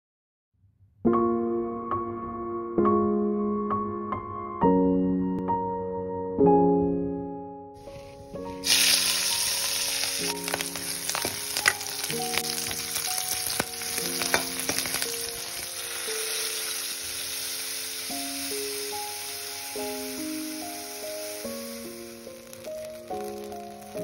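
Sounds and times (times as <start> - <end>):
soft piano music: 1.0 - 24.0
chillies sizzling in hot oil: 7.8 - 24.0.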